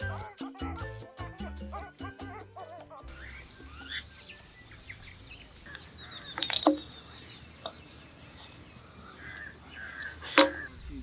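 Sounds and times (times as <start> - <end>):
small birds chirping: 2.7 - 11.0.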